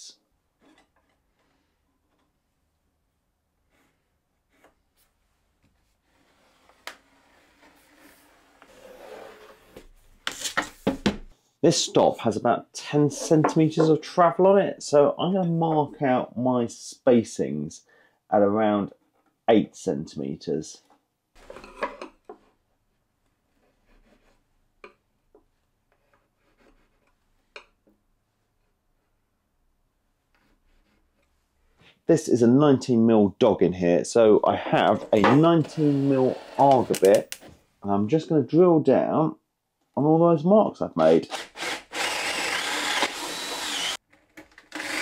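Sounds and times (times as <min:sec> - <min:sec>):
pencil scratching on wood: 0:23.5 - 0:24.5, 0:25.9 - 0:27.2, 0:30.3 - 0:31.3
sharp knocks and scrapes: 0:34.8 - 0:35.8.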